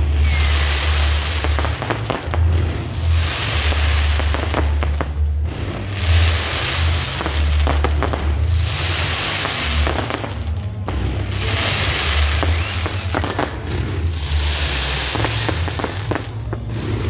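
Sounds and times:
fireworks bursting with pops and bangs: 0.0s - 17.0s
fireworks crackling hiss: 0.0s - 17.0s
music with heavy bass: 0.0s - 17.0s
rockets hissing up: 0.0s - 17.0s.

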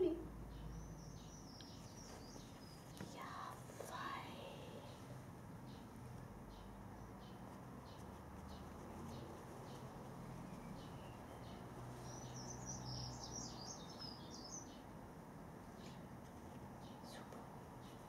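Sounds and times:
bird chirping: 0.0s - 14.9s.

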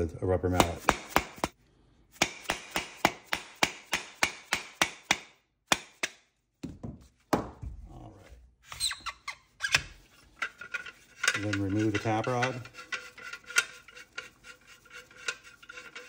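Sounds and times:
metal scraping: 8.7s - 16.0s.

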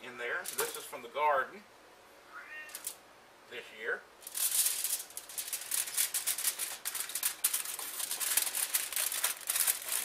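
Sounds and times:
aluminium foil crinkling: 0.4s - 0.9s, 4.2s - 10.0s.

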